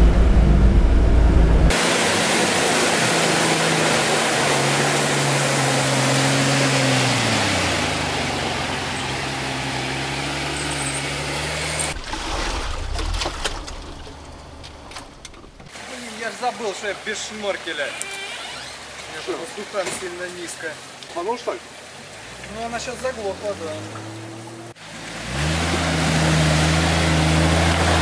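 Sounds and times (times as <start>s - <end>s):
low rumble: 0.0s - 1.7s, 11.9s - 15.7s
car engine running: 0.0s - 12.1s
water rushing and splashing: 1.7s - 28.0s
water dripping: 18.8s - 24.3s.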